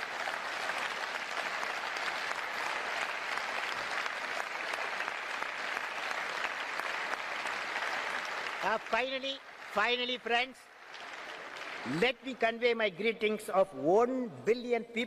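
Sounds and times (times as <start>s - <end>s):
audience applauding: 0.0s - 12.6s.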